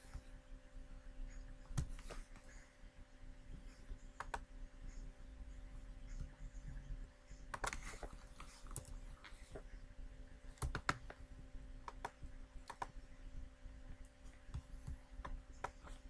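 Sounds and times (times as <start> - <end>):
faint electrical hum: 0.0 - 16.0
computer mouse clicking: 1.7 - 2.4, 4.2 - 4.5, 7.4 - 9.0, 10.5 - 11.2, 11.8 - 13.0, 14.5 - 16.0.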